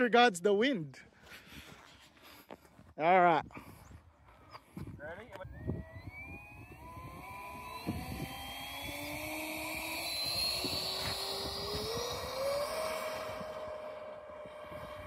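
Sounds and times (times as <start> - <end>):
electric fan whine rising: 4.6 - 15.0.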